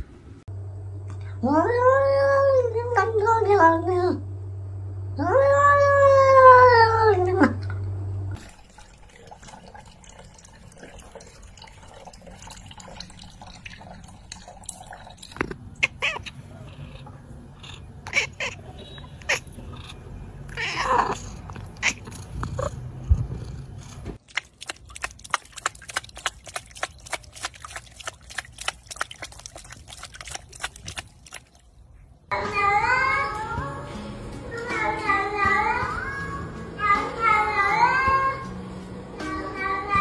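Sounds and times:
water trickling into reservoir: 8.4s - 17.4s, 24.2s - 31.9s
cat paw splashing water: 24.2s - 31.7s.

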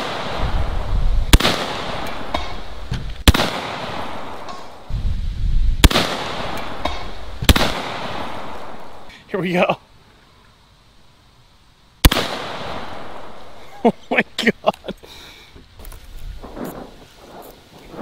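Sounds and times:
air shotgun shots: 0.0s - 0.5s, 1.3s - 4.7s, 5.8s - 8.7s, 12.0s - 13.0s.

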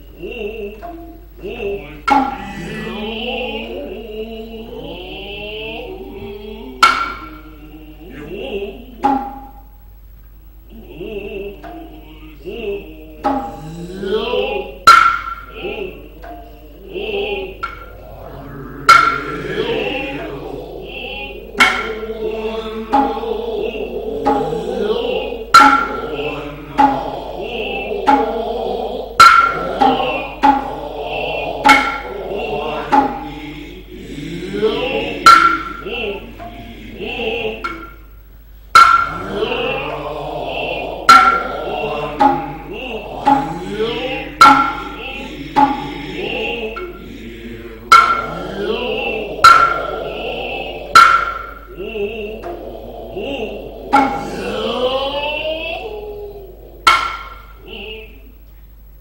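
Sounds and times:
chorus chanting: 0.0s - 59.0s
hand drum strokes: 0.7s - 3.9s, 6.0s - 9.8s, 13.2s - 16.7s, 17.5s - 38.1s, 38.7s - 47.1s, 47.7s - 54.8s, 56.5s - 57.7s
hand drum strikes: 2.1s - 2.7s, 6.8s - 7.3s, 9.0s - 9.6s, 14.8s - 15.5s, 21.6s - 22.1s, 25.5s - 27.2s, 28.0s - 28.4s, 29.2s - 30.8s, 31.6s - 32.1s, 32.7s - 33.2s, 35.2s - 35.9s, 38.8s - 39.8s, 41.1s - 43.6s, 44.3s - 46.0s, 47.9s - 48.4s, 49.4s - 50.0s, 50.9s - 51.7s, 53.9s - 54.4s, 56.8s - 57.6s.

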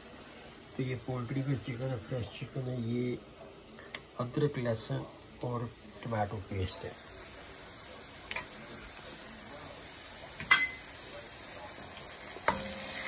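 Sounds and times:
onions sizzling in oil: 0.0s - 13.0s
metal spoon clinking against pot: 10.4s - 10.8s, 12.5s - 13.0s.

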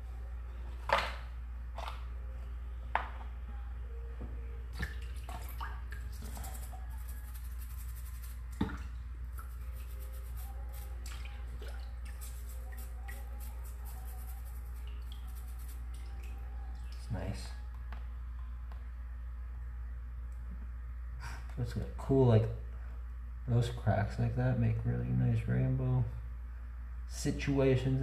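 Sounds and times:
steady low hum: 0.0s - 28.0s
water dripping and splashing: 4.8s - 6.4s, 8.4s - 10.0s, 10.8s - 13.3s, 14.7s - 17.1s
toothbrush scrubbing crystal: 6.2s - 8.6s, 9.4s - 11.0s, 12.0s - 15.9s.

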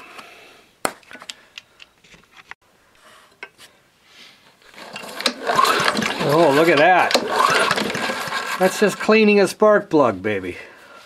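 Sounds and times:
rag rustling: 4.6s - 9.1s.

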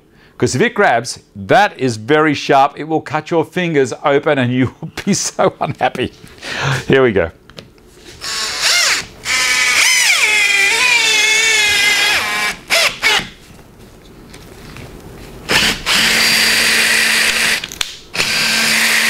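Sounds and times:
cordless drill motor whine: 8.2s - 13.3s, 15.5s - 19.0s.

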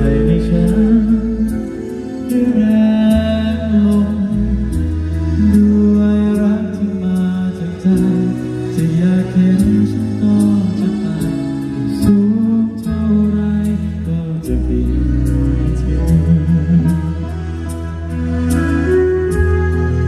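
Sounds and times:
slow ballad over loudspeakers: 0.0s - 20.0s.

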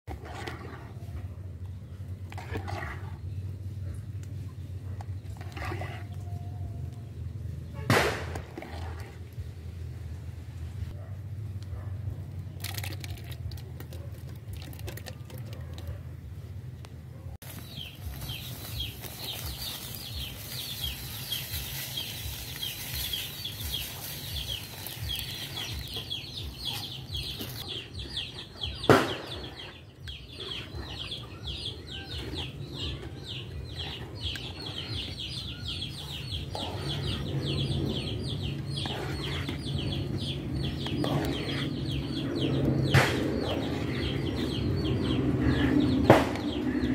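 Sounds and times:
chickens chirping: 17.5s - 46.9s.

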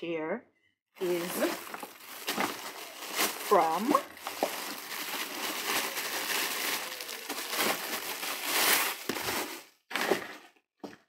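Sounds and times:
plastic wrapping crinkling: 1.0s - 10.5s.

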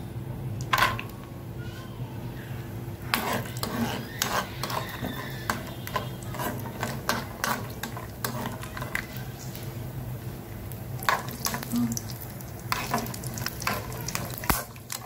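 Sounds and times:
oil sizzling: 2.9s - 15.0s
spatula scraping nuts in pan: 3.0s - 9.2s, 11.0s - 11.8s, 12.6s - 15.0s.

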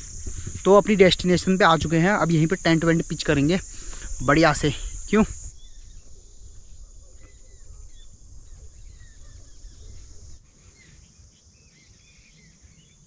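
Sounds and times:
high-pitched insect chorus: 0.0s - 13.0s
small birds chirping: 0.0s - 13.0s.

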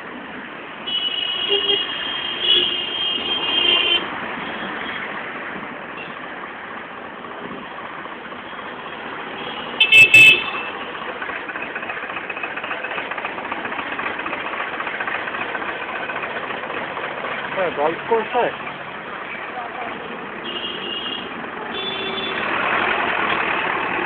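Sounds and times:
road traffic noise: 0.0s - 24.0s
vehicle horn honking: 0.8s - 4.1s, 9.4s - 10.8s, 20.4s - 22.5s
engine running steadily: 9.4s - 24.0s.

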